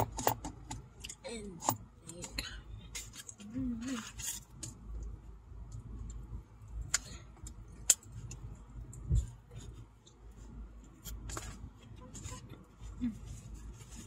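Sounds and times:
low steady car cabin hum: 0.0s - 14.0s
small rustles: 8.2s - 14.0s.

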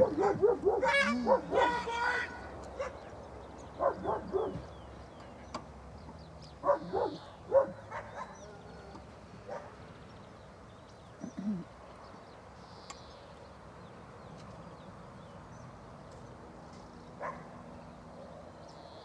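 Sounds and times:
dog barking: 0.0s - 3.0s, 3.8s - 4.7s, 6.6s - 8.6s, 9.5s - 9.8s, 17.2s - 17.6s.

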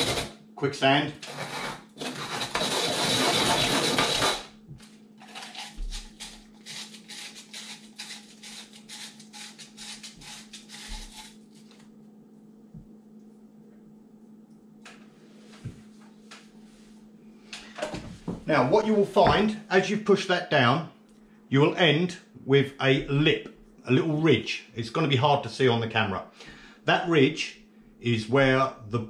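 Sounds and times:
metal edge rubbed on sandpaper: 0.0s - 0.3s, 1.2s - 4.5s, 6.6s - 11.4s.

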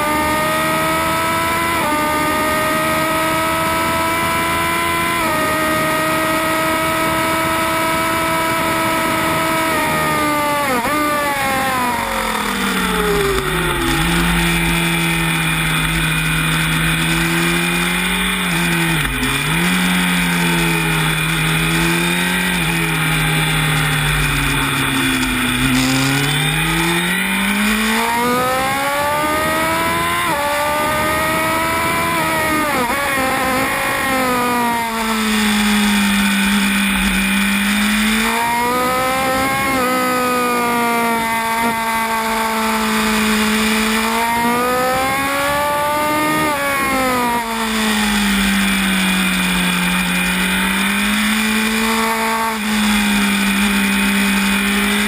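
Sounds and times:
gear change: 0.0s - 55.0s
motorcycle engine revving: 0.0s - 55.0s.

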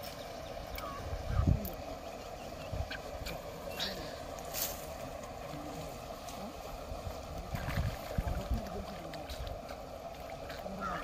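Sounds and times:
light water splash: 3.3s - 11.0s.

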